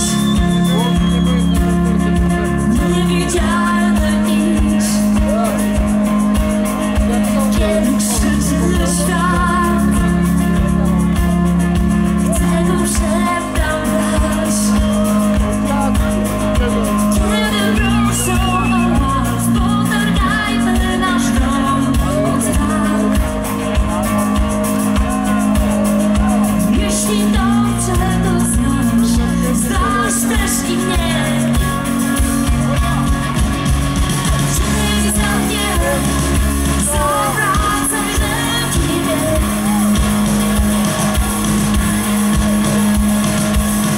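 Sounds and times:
bass guitar: 0.0s - 43.9s
drums: 0.0s - 43.9s
electric guitar: 0.0s - 43.9s
woman singing: 2.6s - 11.2s, 12.2s - 33.4s, 34.4s - 40.2s.

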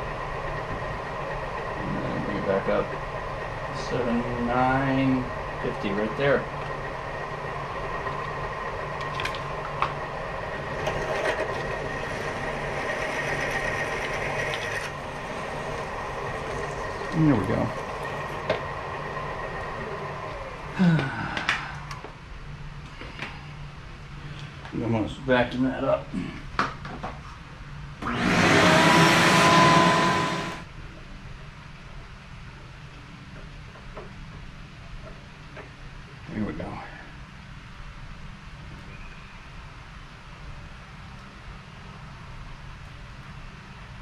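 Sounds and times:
drill motor hum: 10.0s - 20.8s, 28.0s - 30.7s
vacuum cleaner running: 10.6s - 21.3s, 28.0s - 30.7s
drill cutting whine: 28.0s - 30.7s.

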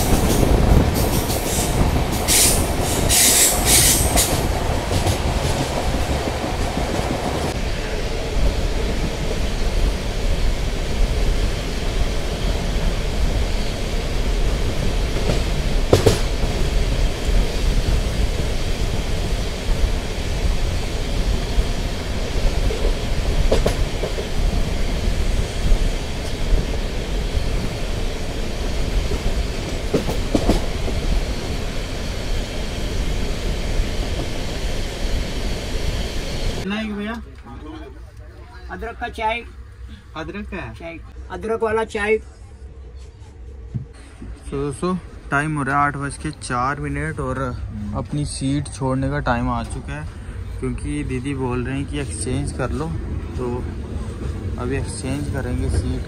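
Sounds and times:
wheels screeching: 0.0s - 6.6s
train wheels rumbling on track: 0.0s - 39.9s, 42.7s - 56.0s.

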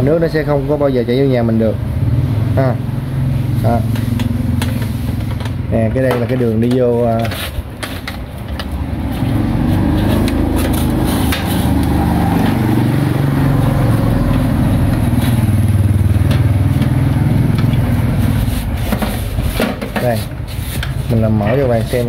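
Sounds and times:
engine wavering low hum: 8.4s - 19.6s.

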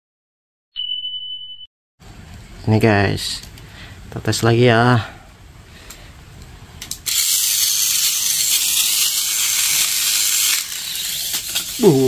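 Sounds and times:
toy car motor whirring: 7.0s - 12.0s.

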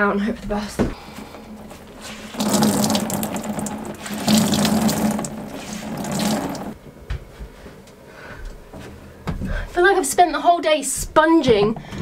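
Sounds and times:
water splashing into plastic bucket: 1.0s - 6.8s.

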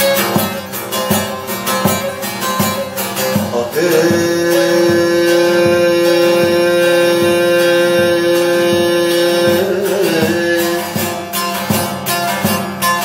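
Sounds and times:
saz strumming: 0.0s - 13.0s
man singing a long note: 3.6s - 11.0s.

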